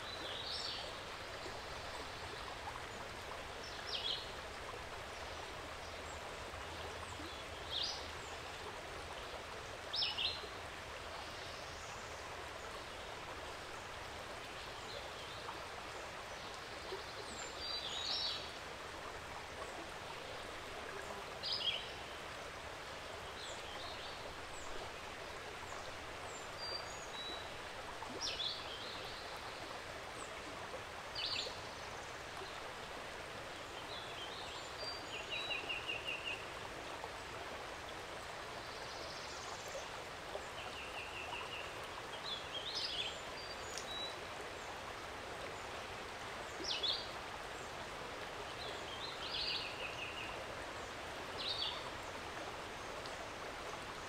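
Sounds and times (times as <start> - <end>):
creek water flowing: 0.0 - 54.0
songbird chirps: 38.4 - 45.7, 46.3 - 54.0.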